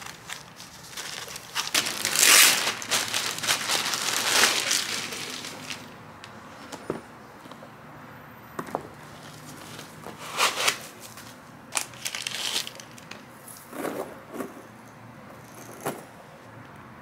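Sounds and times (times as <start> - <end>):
handbag material rustling: 0.0 - 5.9.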